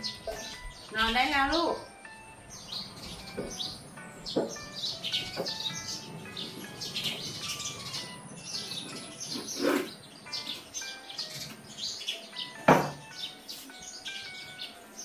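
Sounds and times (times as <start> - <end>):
small birds chirping: 0.0 - 15.0
knocks: 4.3 - 4.7, 12.6 - 13.1.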